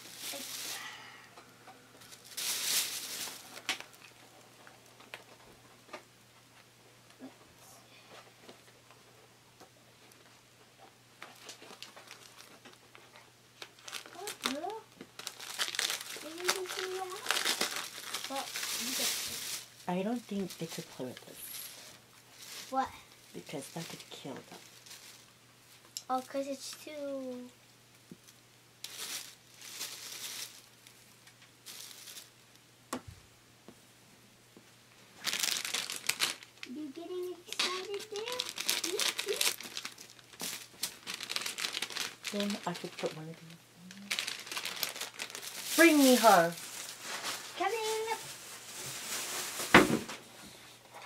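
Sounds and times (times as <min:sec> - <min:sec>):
plastic packaging rustling: 0:00.0 - 0:00.9, 0:02.0 - 0:05.4, 0:11.2 - 0:26.8, 0:28.8 - 0:32.4, 0:35.2 - 0:50.3.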